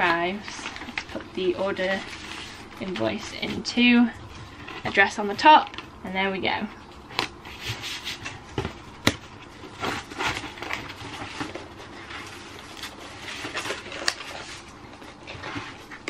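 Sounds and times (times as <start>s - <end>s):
cardboard box being folded: 7.2s - 16.0s
paper rustling: 9.5s - 16.0s.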